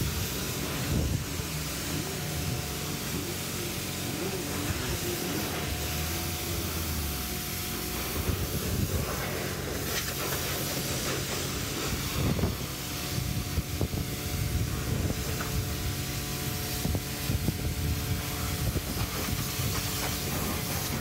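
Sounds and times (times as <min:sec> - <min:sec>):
pressure washer spraying water: 0:00.0 - 0:21.0.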